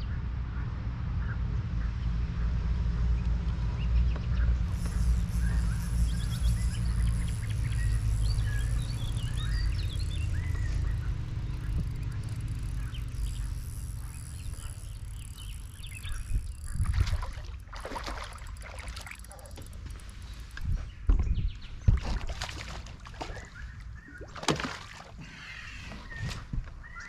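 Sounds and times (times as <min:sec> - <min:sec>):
low rumble: 0:00.3 - 0:17.6
small birds chirping: 0:03.2 - 0:17.4, 0:18.2 - 0:27.0.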